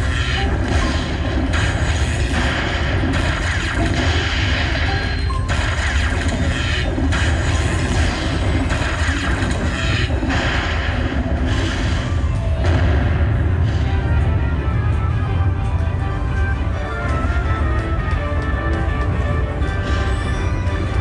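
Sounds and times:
slot machine bonus music: 0.0s - 10.6s, 13.9s - 21.0s
booming thunder crashes: 10.3s - 14.8s.

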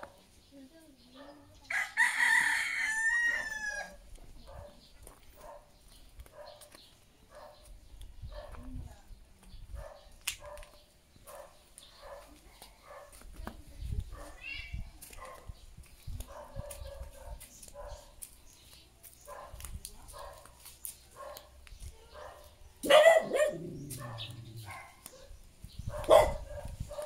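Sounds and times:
dog barking: 4.4s - 4.8s, 5.4s - 5.7s, 6.3s - 6.7s, 7.3s - 7.7s, 8.3s - 8.6s, 9.8s - 13.2s, 15.2s - 15.6s, 16.3s - 18.1s, 19.2s - 20.5s, 21.2s - 21.5s, 22.1s - 27.0s.

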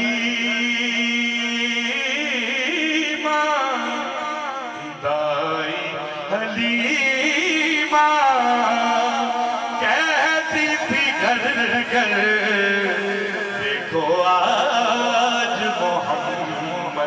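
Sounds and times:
man singing through a microphone: 0.0s - 17.0s.

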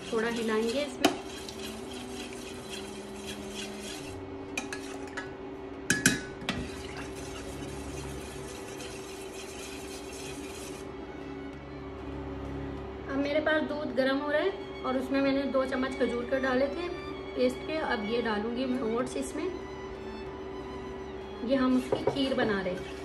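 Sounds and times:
metal spoon stirring in saucepan: 0.0s - 5.2s, 6.9s - 10.9s, 22.6s - 23.0s
steady hum: 0.0s - 23.0s.

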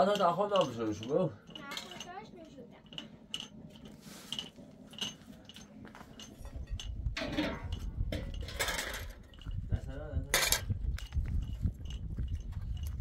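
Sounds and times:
small hard objects clinking: 0.0s - 7.0s
rustling scraping noise: 3.5s - 9.8s.

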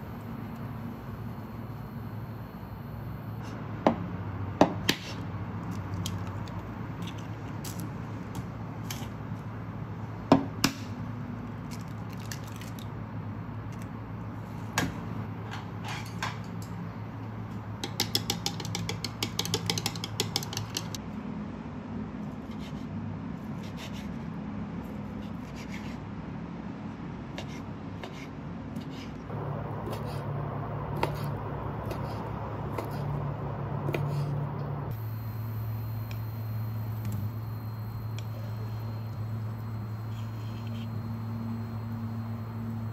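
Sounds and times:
steady low hum: 0.0s - 42.9s
chopsticks beating egg in bowl: 17.8s - 21.0s.

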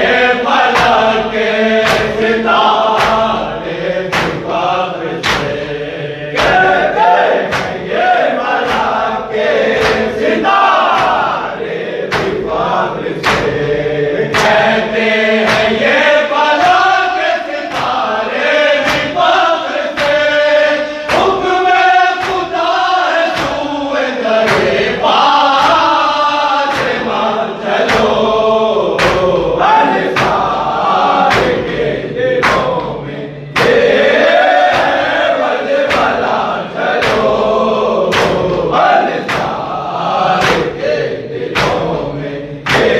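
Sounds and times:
men chanting in unison: 0.0s - 42.9s
hand strikes on chest: 2.9s - 3.4s, 5.2s - 5.7s, 7.4s - 7.8s, 9.7s - 10.1s, 13.2s - 13.7s, 29.0s - 29.4s, 33.6s - 34.0s, 34.6s - 35.1s, 38.1s - 39.6s, 41.6s - 42.9s.

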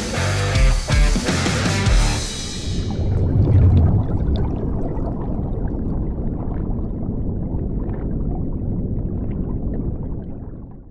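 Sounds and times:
low steady rumble: 2.3s - 10.9s
underwater bubbling: 2.4s - 10.9s.

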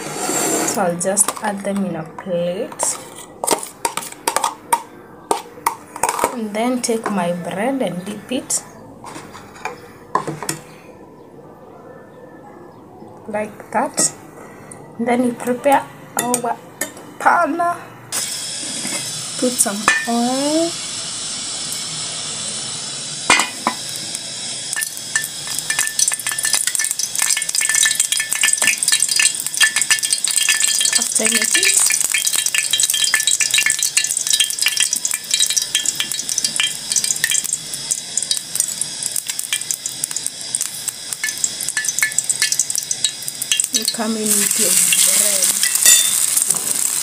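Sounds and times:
oil sizzling in a frying pan: 18.1s - 47.0s.

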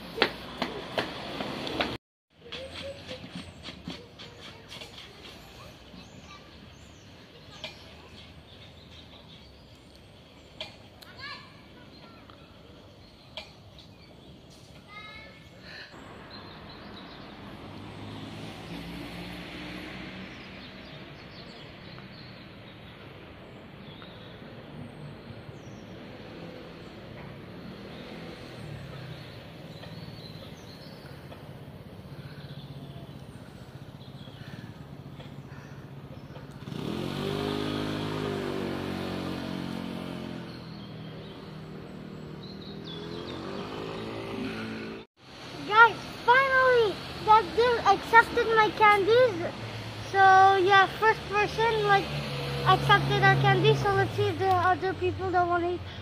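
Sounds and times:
road traffic rumble: 0.0s - 56.0s
vehicle passing: 15.7s - 21.4s, 25.8s - 56.0s.

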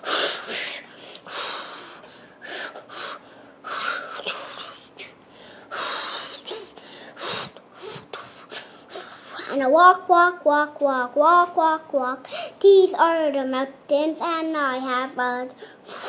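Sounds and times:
child huffing and mouth noises: 5.8s - 9.5s, 15.8s - 16.0s.

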